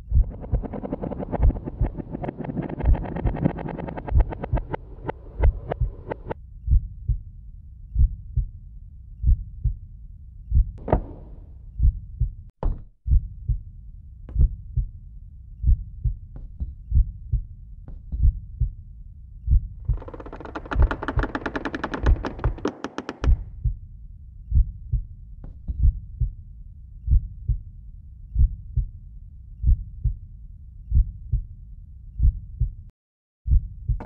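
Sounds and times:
heartbeat thumps: 0:00.0 - 0:07.2, 0:07.9 - 0:08.5, 0:09.2 - 0:09.8, 0:10.5 - 0:11.2, 0:11.8 - 0:12.5, 0:13.1 - 0:13.6, 0:14.3 - 0:14.9, 0:15.6 - 0:17.5, 0:18.2 - 0:18.8, 0:19.4 - 0:23.8, 0:24.5 - 0:25.1, 0:25.7 - 0:26.4, 0:27.0 - 0:27.6, 0:28.3 - 0:28.9, 0:29.6 - 0:30.2, 0:30.9 - 0:31.5, 0:32.2 - 0:32.8, 0:33.5 - 0:34.0
dense swelling sound: 0:00.1 - 0:06.4.

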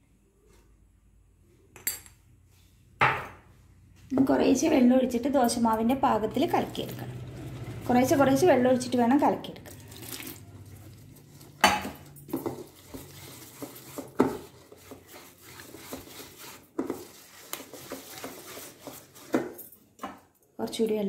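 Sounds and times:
whisk knocking on bowl: 0:11.7 - 0:19.6
whisk scraping a metal bowl: 0:12.3 - 0:19.6.

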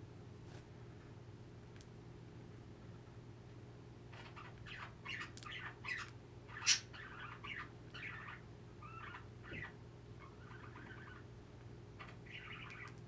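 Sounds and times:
steady low hum: 0:00.0 - 0:13.0
budgie chirping and chattering: 0:04.1 - 0:11.3, 0:12.0 - 0:13.0.

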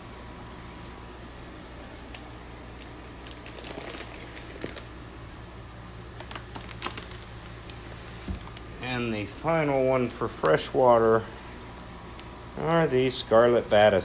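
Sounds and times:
steady low hum: 0:00.0 - 0:14.0
plastic bag crinkling in water: 0:02.7 - 0:05.0, 0:06.1 - 0:07.8.

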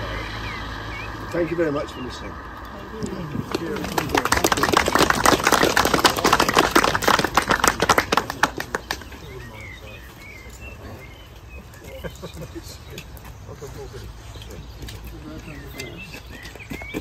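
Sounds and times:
bird chirping: 0:00.0 - 0:03.9, 0:08.3 - 0:17.0
small group clapping: 0:03.4 - 0:09.8.

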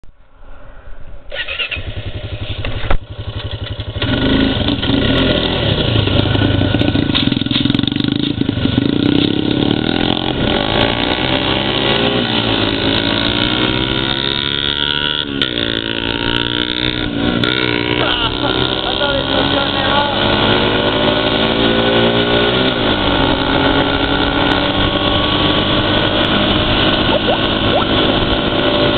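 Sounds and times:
atv engine running: 0:01.5 - 0:28.9
motorbike engine running: 0:01.7 - 0:11.0, 0:23.0 - 0:28.9.

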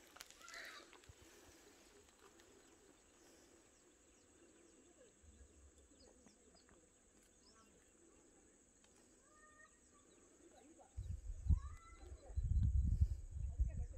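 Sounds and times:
faint high chirps: 0:02.4 - 0:13.5.

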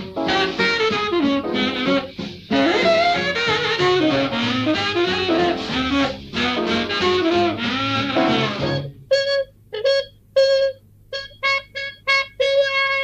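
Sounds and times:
band music: 0:00.0 - 0:09.5.

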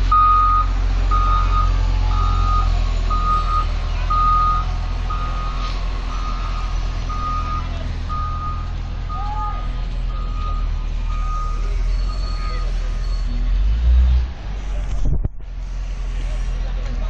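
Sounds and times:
diesel engine running: 0:00.0 - 0:17.0
reversing alarm beeping: 0:00.1 - 0:13.4.

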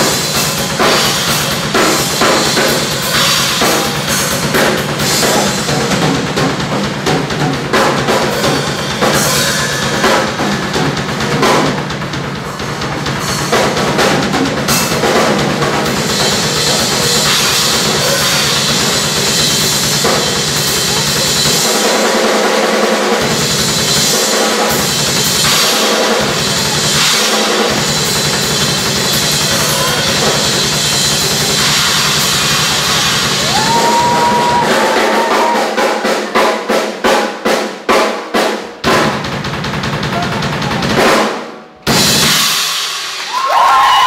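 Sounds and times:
cymbals crashing: 0:00.0 - 0:22.6, 0:23.2 - 0:36.9
drum kit solo: 0:00.0 - 0:44.0.

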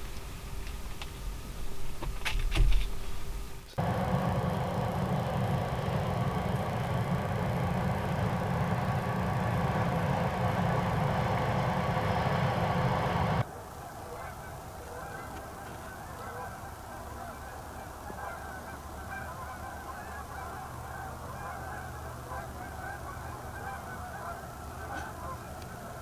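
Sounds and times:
geese honking: 0:03.8 - 0:13.4, 0:14.1 - 0:26.0
truck engine running: 0:03.8 - 0:13.4.

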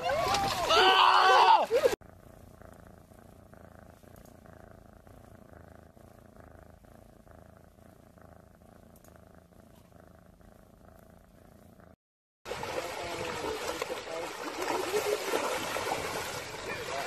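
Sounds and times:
cat purring: 0:01.9 - 0:12.0.

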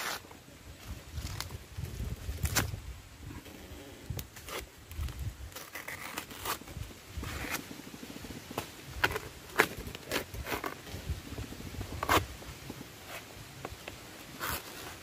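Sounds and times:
knife cracking and tearing sheath: 0:02.3 - 0:02.8, 0:04.1 - 0:07.6, 0:09.0 - 0:10.8, 0:14.4 - 0:15.0.

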